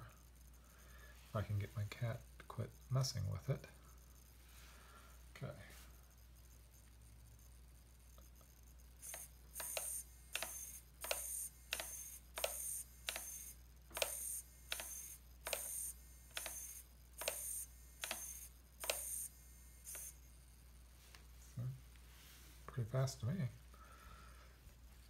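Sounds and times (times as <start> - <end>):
servo clicks: 8.1 - 20.3
servo motor whine: 9.0 - 20.6.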